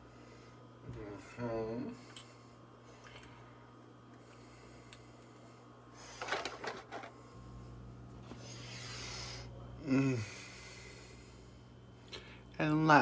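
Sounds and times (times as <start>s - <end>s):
rustling handling noise: 6.0s - 7.2s
person humming: 9.8s - 10.6s.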